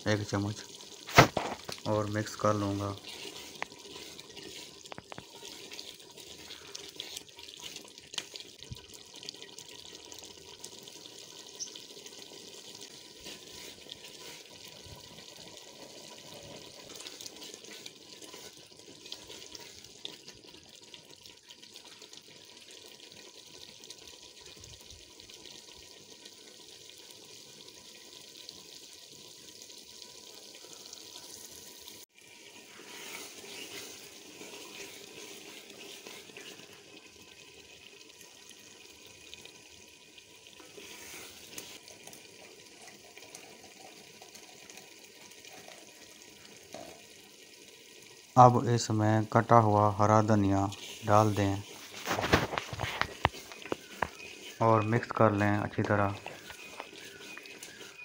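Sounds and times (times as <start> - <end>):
food simmering in oil: 0.0 - 58.0
wooden spoon stirring: 1.5 - 9.0, 12.9 - 20.6, 32.5 - 37.2, 49.9 - 58.0.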